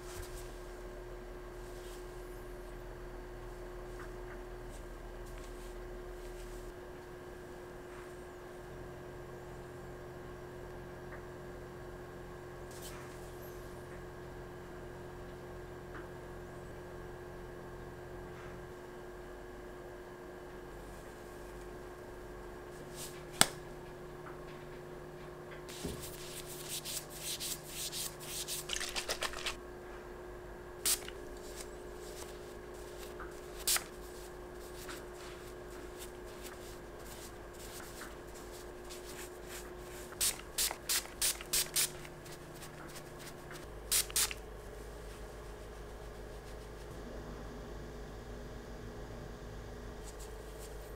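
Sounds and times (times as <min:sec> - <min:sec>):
faint steady hum: 0:00.0 - 0:50.9
brush and cloth rustling on plastic: 0:03.8 - 0:06.8, 0:25.7 - 0:29.6, 0:30.9 - 0:46.9.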